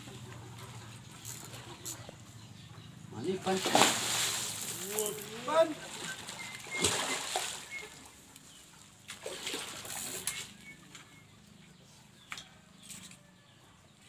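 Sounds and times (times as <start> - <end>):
fish splashing in water: 3.4 - 8.3, 9.0 - 10.8.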